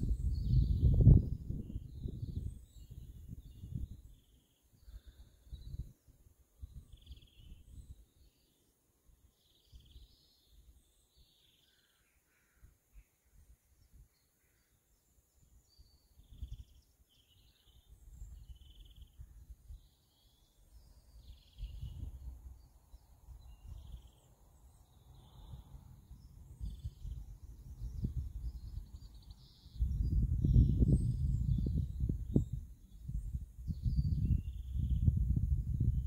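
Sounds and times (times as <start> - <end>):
wind buffeting microphone: 0.0 - 4.2, 21.2 - 22.4, 26.1 - 36.0
birds chirping: 9.4 - 35.1.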